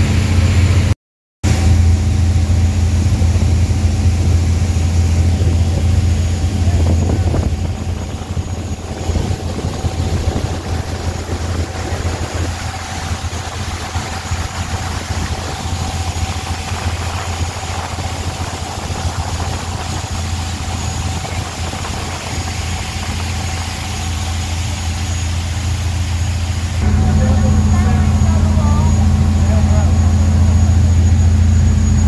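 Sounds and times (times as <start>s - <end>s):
boat engine droning: 0.0s - 0.9s, 1.5s - 32.0s
faint steady whine: 1.5s - 32.0s.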